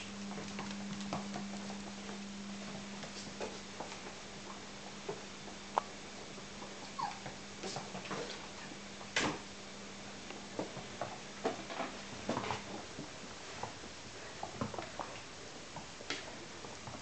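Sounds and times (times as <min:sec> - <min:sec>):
puppies clicking and scuffling: 0:00.0 - 0:05.9, 0:06.6 - 0:09.3
puppy squeak: 0:06.8 - 0:07.3.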